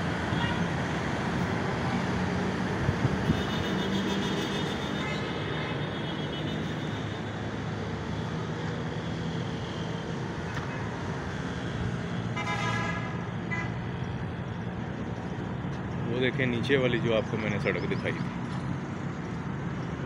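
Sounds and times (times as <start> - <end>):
city road traffic: 0.0 - 20.0
vehicle horn toot: 3.2 - 5.1, 12.4 - 13.7.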